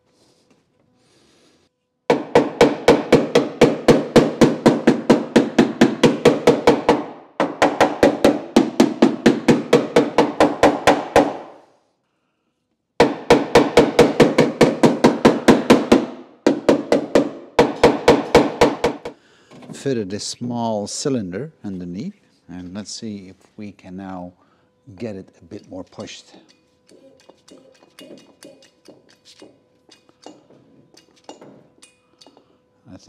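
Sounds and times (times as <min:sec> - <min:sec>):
hammer tapping on metal panel: 0:02.1 - 0:11.5, 0:13.0 - 0:19.2.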